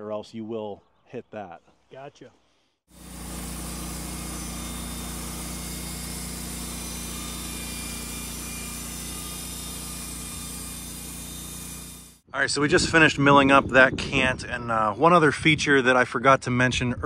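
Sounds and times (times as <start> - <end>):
saw blade hiss: 2.9 - 12.2.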